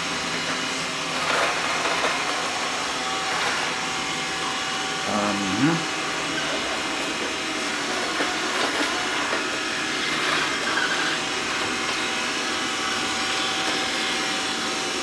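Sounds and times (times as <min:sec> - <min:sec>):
robot vacuum whirring hum: 0:00.0 - 0:15.0.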